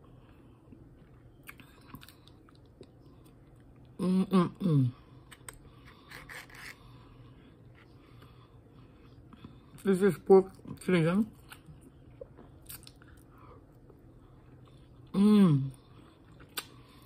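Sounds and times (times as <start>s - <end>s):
person chewing: 0.3s - 3.9s, 5.3s - 7.0s, 11.3s - 15.1s, 15.8s - 17.0s
person humming mmm: 15.1s - 15.8s.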